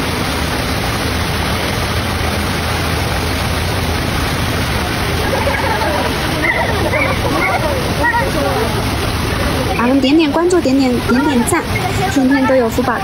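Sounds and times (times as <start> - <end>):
steady static-like rushing noise: 0.0 - 13.0
faint voice: 5.2 - 10.0.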